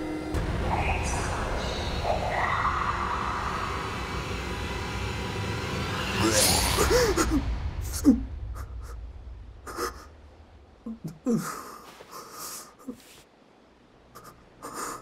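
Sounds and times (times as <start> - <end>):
low rumble: 0.0 - 11.8.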